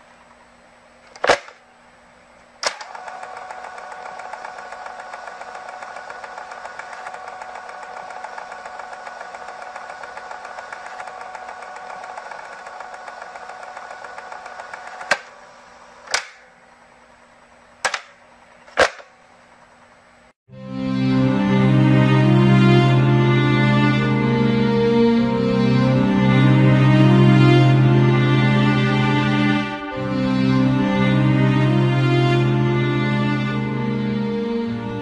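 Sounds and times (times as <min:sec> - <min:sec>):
film projector whirring: 0:02.4 - 0:20.2.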